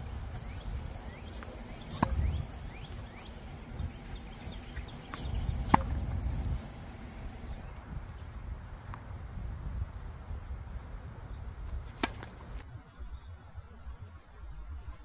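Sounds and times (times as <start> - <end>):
tennis racket hitting ball: 0.3 - 7.5.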